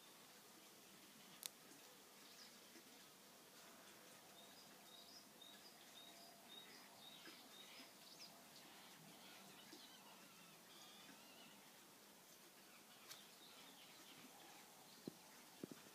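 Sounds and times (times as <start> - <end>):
small birds chirping: 3.8 - 15.9.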